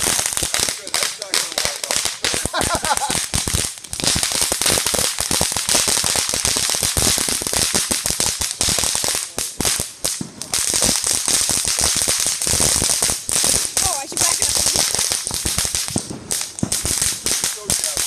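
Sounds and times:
spark fountain hissing: 0:00.0 - 0:05.6, 0:10.8 - 0:18.0
fireworks crackling pops: 0:00.0 - 0:18.0.

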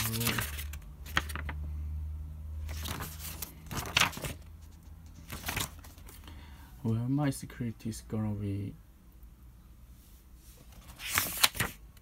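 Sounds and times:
book pages rustling: 0:00.0 - 0:01.6, 0:02.6 - 0:06.3, 0:10.4 - 0:11.8.

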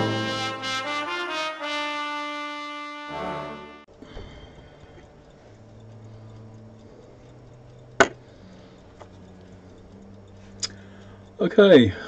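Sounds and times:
brass music: 0:00.0 - 0:03.9
steady low hum: 0:03.1 - 0:12.0
sharp click: 0:10.5 - 0:10.8.

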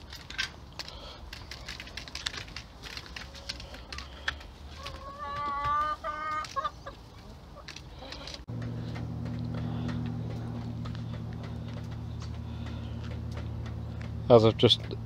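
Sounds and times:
chickens clucking: 0:02.9 - 0:15.0
chicken pitched call: 0:04.8 - 0:07.0.

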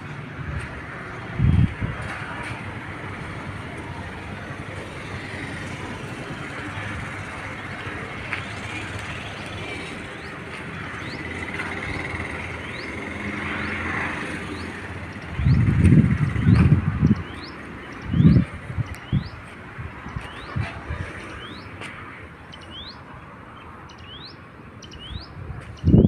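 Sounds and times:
hum of vehicles: 0:00.0 - 0:26.0
bird chirps: 0:23.9 - 0:26.0.

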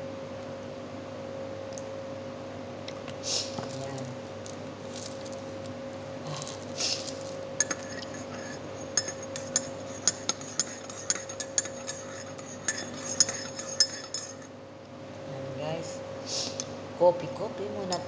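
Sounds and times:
teaspoon clinking in ceramic mug: 0:08.9 - 0:14.5.

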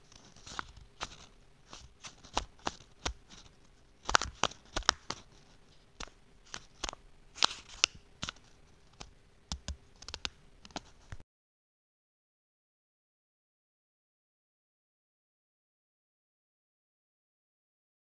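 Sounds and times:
tape crackling: 0:00.0 - 0:11.2.

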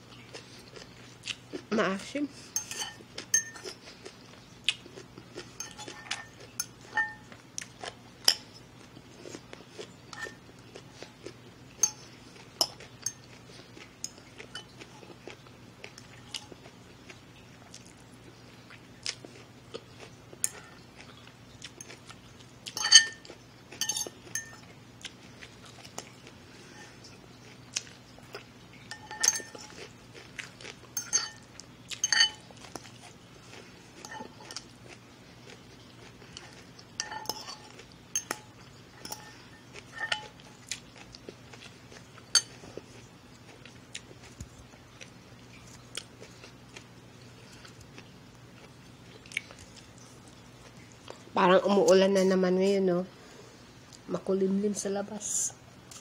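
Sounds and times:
crunchy chewing: 0:08.8 - 0:51.3.

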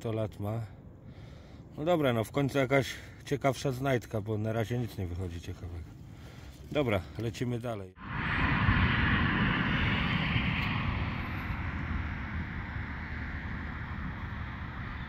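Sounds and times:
wind on microphone: 0:08.0 - 0:15.0.

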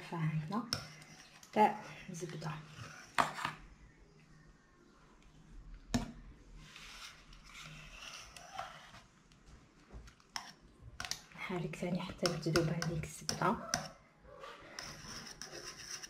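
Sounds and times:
whisk swishing and scraping pan: 0:00.0 - 0:03.5, 0:06.6 - 0:09.1, 0:14.6 - 0:16.0.

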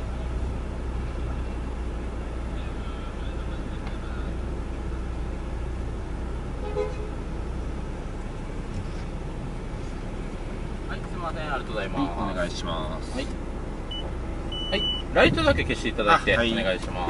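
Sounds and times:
car engine idling: 0:00.0 - 0:17.0
car horn toot: 0:06.6 - 0:07.3.

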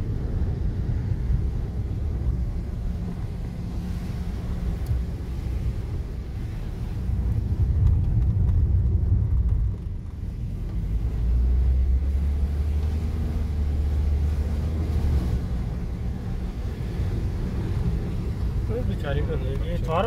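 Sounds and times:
car engine and road rumble: 0:00.0 - 0:20.0.

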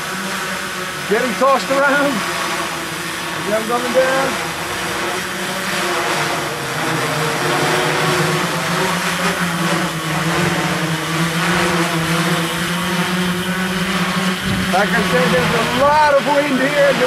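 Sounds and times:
drone propellers buzzing hum: 0:00.0 - 0:17.0
strong wind rushing: 0:14.4 - 0:16.1.

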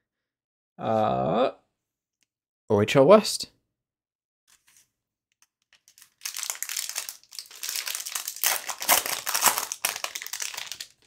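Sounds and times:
foil wrapper crinkling and tearing: 0:05.7 - 0:11.0.

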